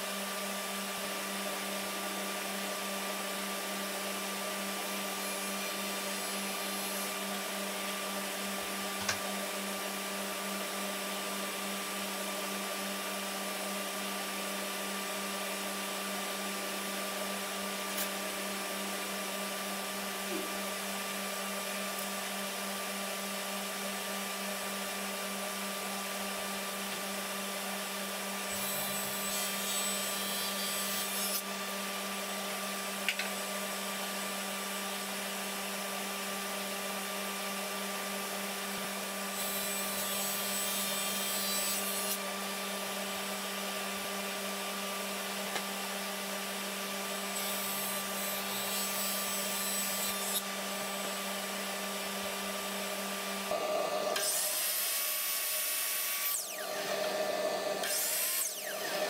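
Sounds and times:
small electric motor running: 28.4 - 32.3, 38.4 - 45.2, 46.1 - 59.0.

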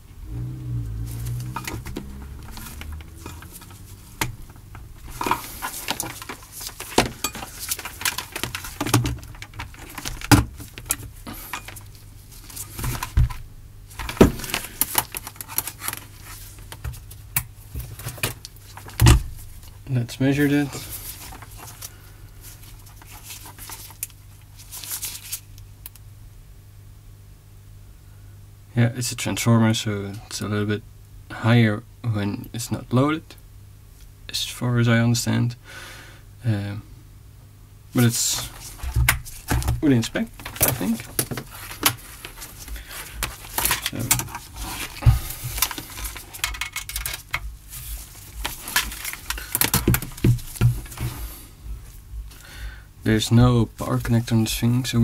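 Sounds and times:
low electrical hum: 0.0 - 55.0
handling clicks and rustles: 1.0 - 26.0, 38.0 - 52.4
small hard items clattering: 1.2 - 17.0, 38.2 - 51.2.

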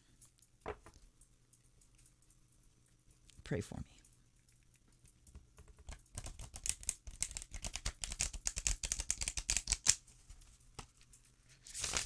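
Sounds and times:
cards riffle shuffling: 6.0 - 10.0, 11.6 - 12.0.

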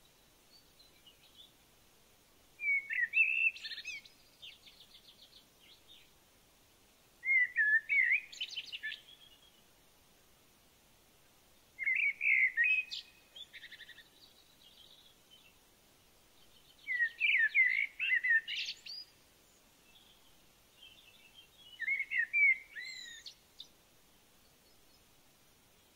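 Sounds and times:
songbird warbling: 2.6 - 5.0, 7.2 - 9.6, 11.8 - 15.1, 16.8 - 19.2, 20.8 - 23.7.

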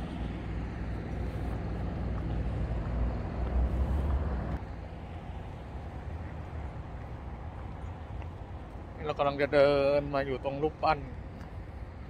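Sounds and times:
street noise: 0.0 - 12.0
vehicle engine rumbling: 0.0 - 12.0.

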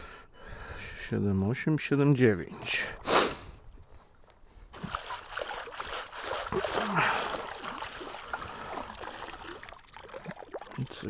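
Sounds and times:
shallow water sloshing and splashing: 2.4 - 11.0.

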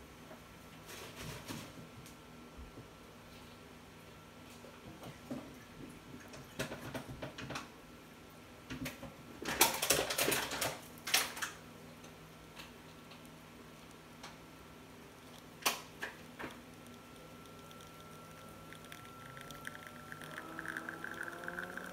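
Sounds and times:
espresso machine hum: 15.0 - 21.9
espresso dripping into cup: 15.2 - 21.9.

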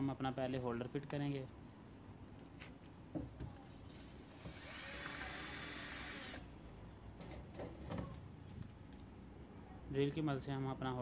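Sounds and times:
cordless drill running: 4.4 - 6.4.

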